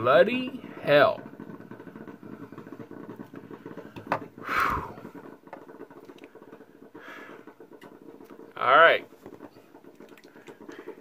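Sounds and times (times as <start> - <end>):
faint breath: 4.4 - 5.0, 6.9 - 7.5
heavy exhaled sigh: 4.4 - 5.0.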